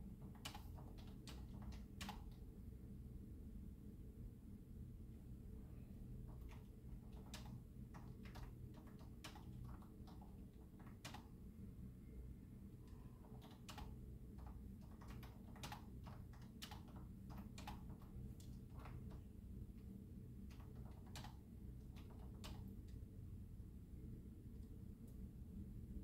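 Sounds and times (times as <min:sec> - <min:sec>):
low room hum: 0:00.0 - 0:26.0
keyboard typing clicks: 0:00.2 - 0:02.4, 0:06.3 - 0:11.3, 0:12.9 - 0:19.3, 0:20.4 - 0:23.0.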